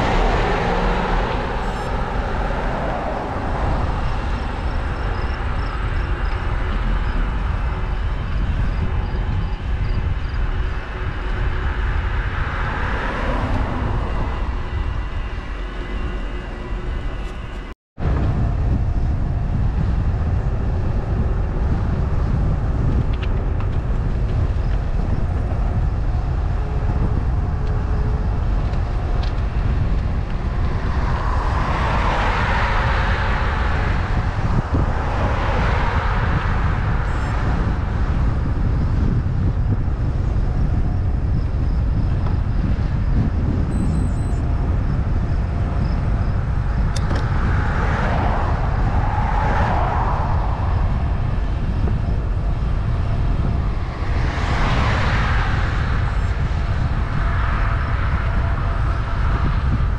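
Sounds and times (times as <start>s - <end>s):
rushing swells: 0.0s - 6.3s, 10.6s - 17.8s, 29.5s - 38.5s, 46.4s - 59.9s
road and wind rumble: 0.0s - 59.9s.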